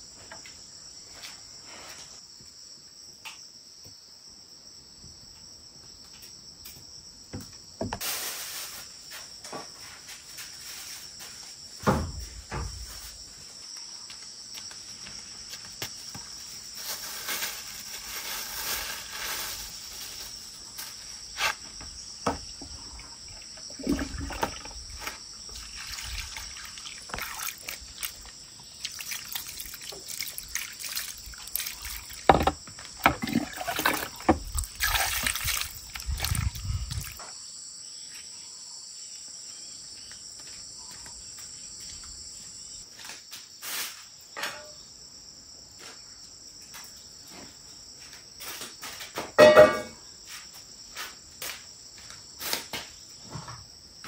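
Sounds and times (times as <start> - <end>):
crickets chirping: 0.0 - 54.0
water pouring and trickling: 22.3 - 37.2.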